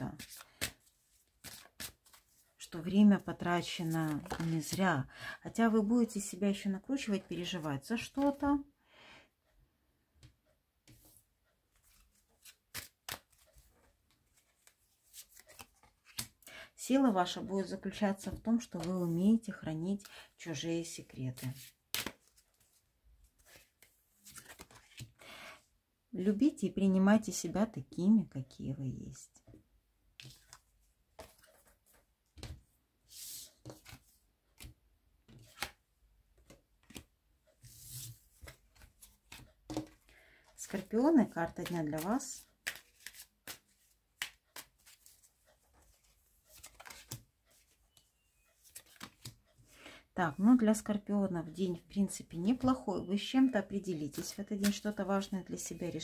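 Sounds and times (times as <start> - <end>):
cards rustling and clicking: 0.2 - 2.5, 3.7 - 4.8, 11.7 - 16.4, 21.3 - 25.2, 30.2 - 32.6, 33.2 - 35.8, 36.4 - 49.8, 54.1 - 55.1
cards clicking and tapping: 21.9 - 22.4, 34.6 - 35.8, 38.4 - 40.1, 41.6 - 45.2, 46.5 - 47.7, 48.6 - 49.4
cards sliding swishes: 33.1 - 34.0, 37.6 - 38.6, 42.0 - 45.2.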